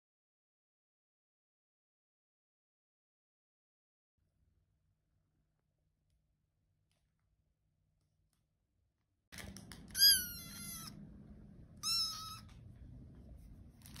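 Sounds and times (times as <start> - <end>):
low steady rumble: 9.4 - 14.0
kitten meowing: 10.0 - 11.0, 11.8 - 12.6.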